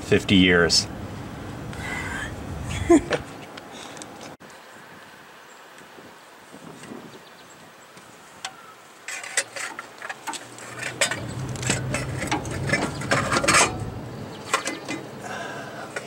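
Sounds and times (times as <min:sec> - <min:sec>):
metal-on-metal scraping: 0:09.0 - 0:15.1
metal clunks and knocks: 0:09.1 - 0:15.1.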